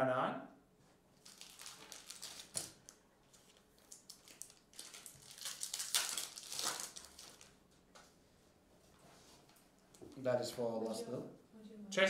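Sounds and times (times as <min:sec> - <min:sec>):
foil wrapper crinkling: 0:01.2 - 0:07.6.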